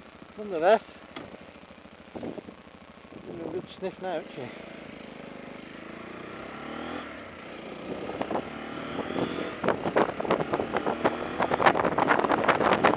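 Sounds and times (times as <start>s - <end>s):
motorcycle engine pulling away: 4.2s - 12.9s
wind buffeting microphone: 9.0s - 12.9s.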